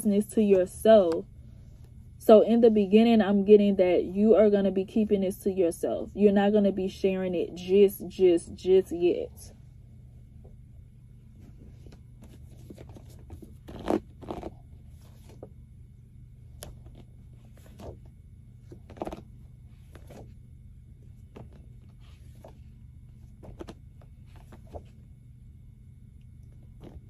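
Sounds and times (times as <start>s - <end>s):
low hum: 0.0s - 27.0s
cards being shuffled: 11.6s - 15.5s, 16.6s - 20.4s, 21.2s - 25.0s, 26.8s - 27.0s.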